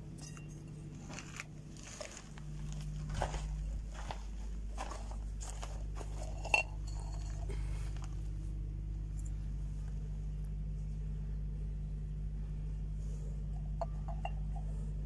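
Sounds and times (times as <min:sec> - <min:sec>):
steady low hum: 0:00.0 - 0:15.0
handling rustles: 0:00.9 - 0:08.4.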